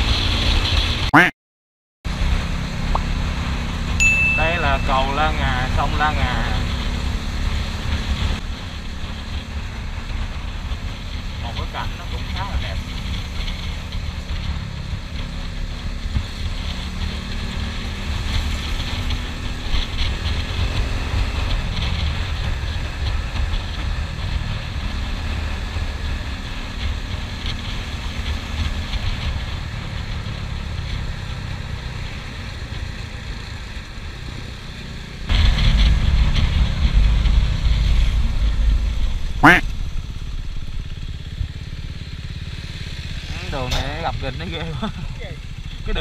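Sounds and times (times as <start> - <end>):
motorcycle engine drone: 2.1 - 46.0
wind rushing over camera: 35.3 - 43.2.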